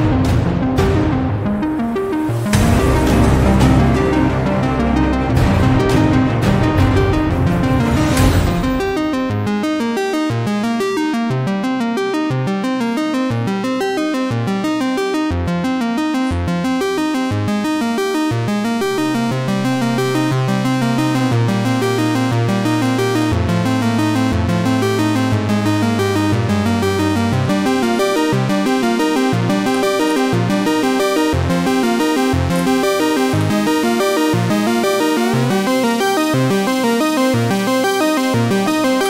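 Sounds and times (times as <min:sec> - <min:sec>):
music of repeating pitched notes: 0:00.0 - 0:39.0
held bass note: 0:00.8 - 0:09.8.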